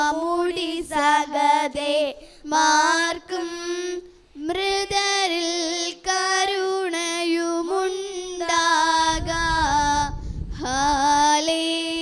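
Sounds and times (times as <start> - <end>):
low rumble: 9.0 - 11.4.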